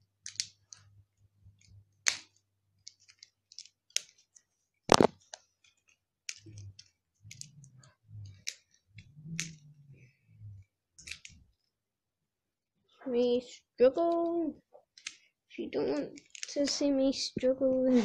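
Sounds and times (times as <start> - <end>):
plastic snaps: 1.6 - 4.3, 4.9 - 5.5.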